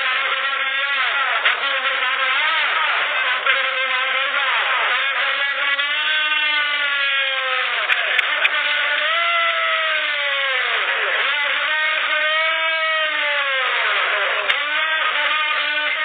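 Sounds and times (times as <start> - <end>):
engine revving up and down: 0.0 - 16.0
sharp click: 7.9 - 8.6.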